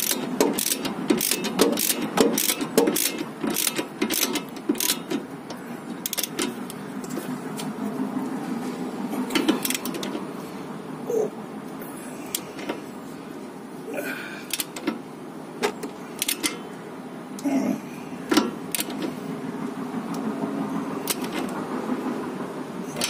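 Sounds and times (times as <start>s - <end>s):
ratchet wrench clicking: 0.0s - 5.2s, 6.0s - 6.5s, 9.4s - 10.2s, 14.5s - 14.9s, 15.7s - 16.6s, 18.4s - 19.2s, 21.0s - 21.5s
steady background hum: 0.0s - 23.0s.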